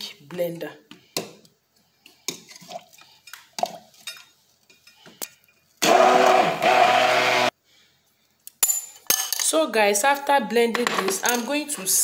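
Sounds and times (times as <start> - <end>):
stick blender motor blending: 5.8 - 7.5.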